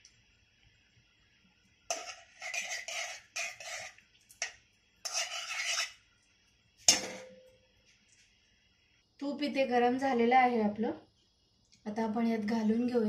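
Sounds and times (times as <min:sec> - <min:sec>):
metal spoon scraping steel pan: 0:01.9 - 0:06.0, 0:06.9 - 0:07.4
sharp metallic clink: 0:06.9 - 0:07.6.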